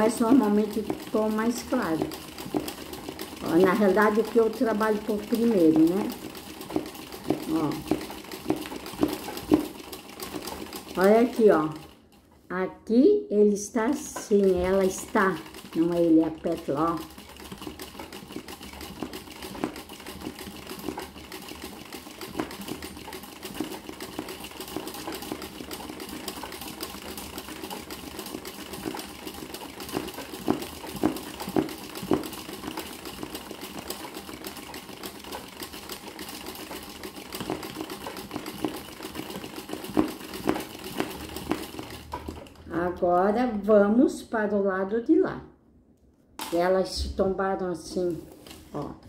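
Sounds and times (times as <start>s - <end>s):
sewing machine stitching: 0.0s - 12.4s, 13.8s - 43.7s.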